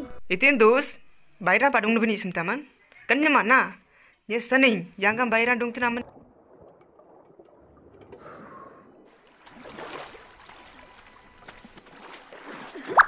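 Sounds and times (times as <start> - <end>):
water lapping and trickling: 6.0 - 13.0.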